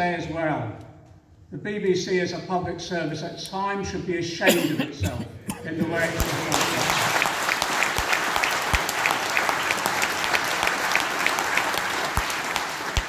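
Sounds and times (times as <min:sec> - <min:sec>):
audience applauding: 0:05.9 - 0:13.0
nearby person clapping: 0:06.2 - 0:13.0.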